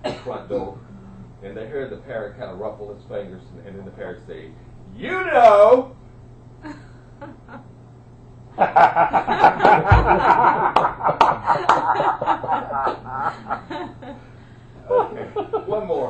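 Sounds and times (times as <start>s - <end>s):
group of people laughing: 8.6s - 14.3s
short low thump: 9.8s - 10.6s.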